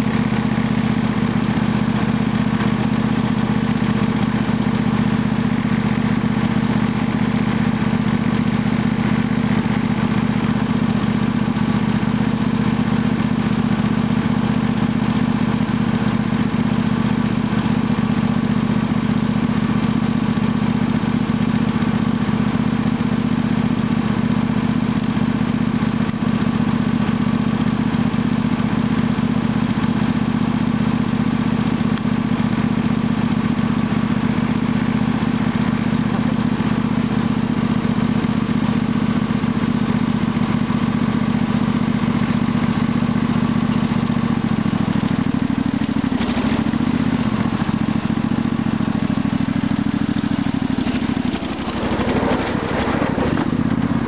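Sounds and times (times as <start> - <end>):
small engine idling: 0.0 - 54.0
mini bike engine passing: 50.9 - 54.0.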